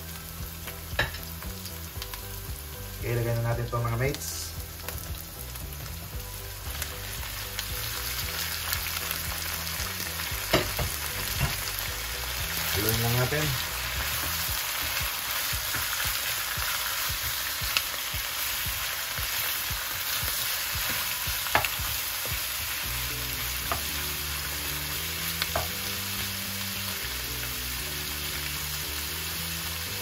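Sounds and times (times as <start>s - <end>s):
food sizzling in oil: 0.0s - 30.0s.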